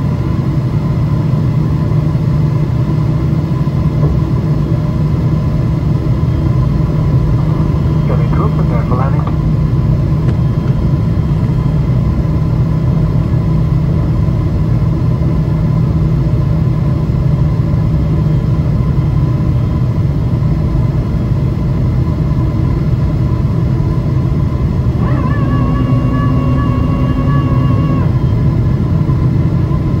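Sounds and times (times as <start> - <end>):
airplane cabin rumble: 0.0 - 30.0
steady held tone: 24.9 - 28.9.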